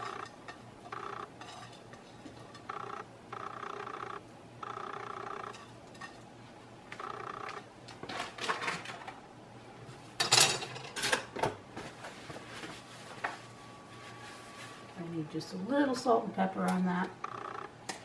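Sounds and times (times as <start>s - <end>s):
dishes clattering: 10.2s - 11.5s.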